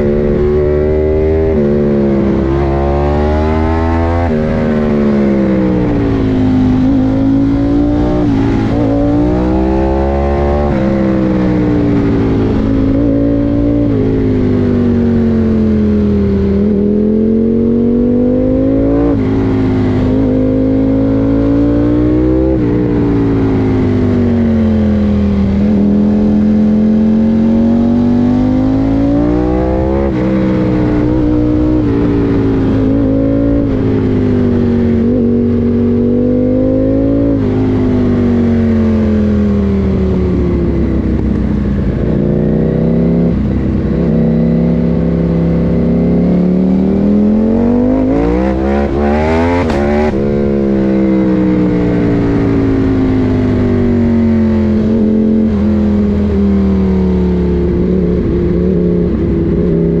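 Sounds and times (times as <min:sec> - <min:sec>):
motorcycle engine revving: 0:00.0 - 1:00.0
wind rush: 0:46.9 - 1:00.0.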